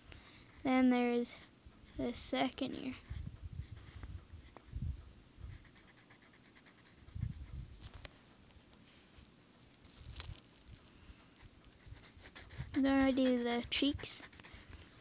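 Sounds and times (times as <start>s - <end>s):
pencil scratching on paper: 0.2s - 7.7s, 11.4s - 15.0s
soft low thumps: 3.0s - 5.6s.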